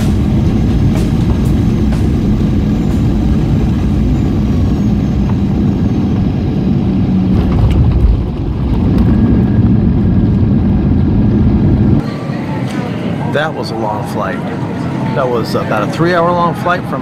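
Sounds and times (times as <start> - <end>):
jet airliner cabin rumble: 0.0 - 13.4.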